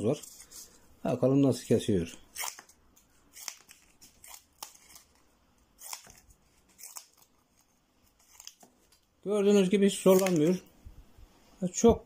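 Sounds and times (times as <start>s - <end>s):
scissors cutting cardboard: 5.8s - 8.6s.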